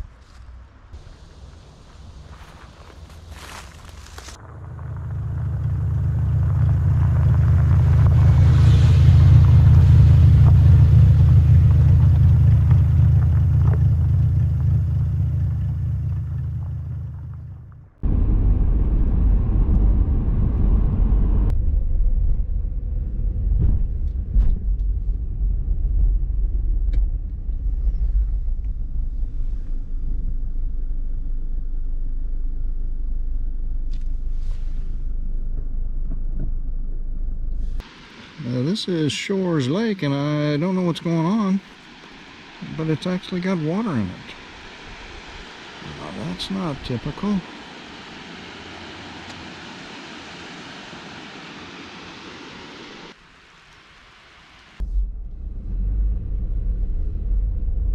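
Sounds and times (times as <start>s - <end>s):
car driving on gravel road: 0.0s - 21.5s
road noise inside car cabin: 0.0s - 21.6s, 26.4s - 57.9s.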